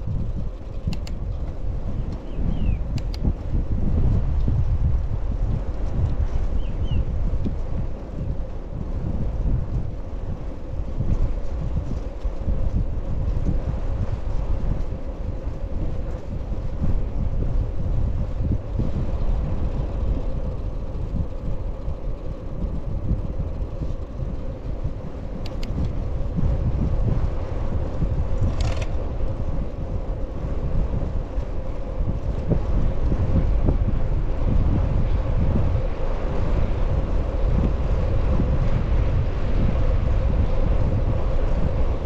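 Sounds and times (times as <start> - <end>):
faint steady hum: 0.0 - 42.0
wind buffeting microphone: 0.0 - 42.0
light clicks: 0.8 - 1.4, 2.9 - 3.3, 25.4 - 26.0.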